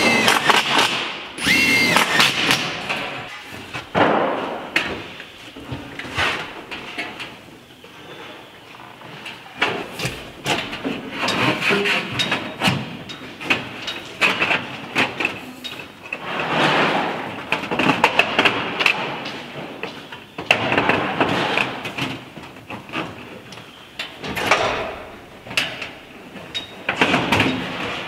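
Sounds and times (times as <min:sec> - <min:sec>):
sharp clicks: 0:00.0 - 0:02.6.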